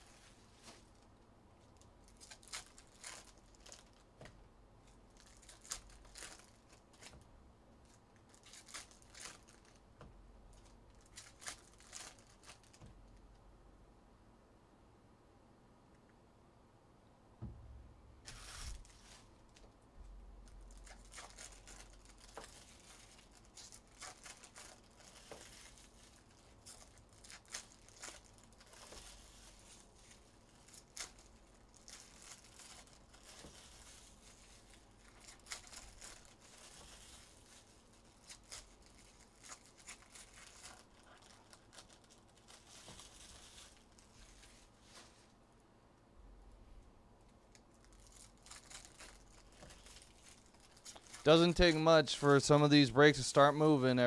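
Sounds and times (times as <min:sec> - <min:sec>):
low steady hum: 0:00.0 - 0:54.0
wrappers crinkling and tearing: 0:01.7 - 0:04.1, 0:04.8 - 0:09.9, 0:10.5 - 0:13.3, 0:18.3 - 0:19.7, 0:20.4 - 0:45.3, 0:47.3 - 0:52.6.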